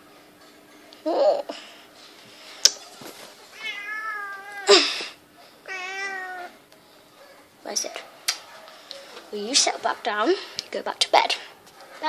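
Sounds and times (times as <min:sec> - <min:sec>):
cat meowing: 0:03.6 - 0:04.7, 0:05.7 - 0:06.6.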